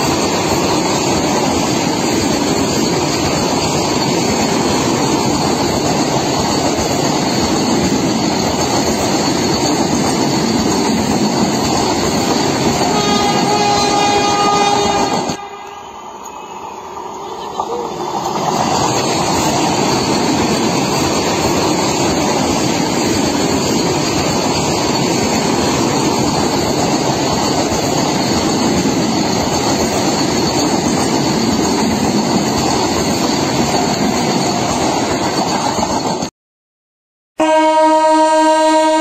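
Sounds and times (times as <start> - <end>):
train wheels rushing on rail: 0.0 - 36.3
train horn: 12.8 - 16.2, 37.4 - 39.0.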